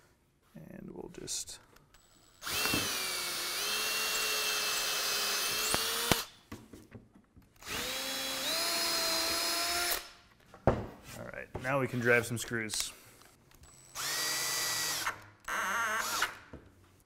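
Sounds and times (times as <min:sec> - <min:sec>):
cordless drill whining: 0:02.0 - 0:06.3, 0:07.6 - 0:10.1, 0:13.6 - 0:16.4.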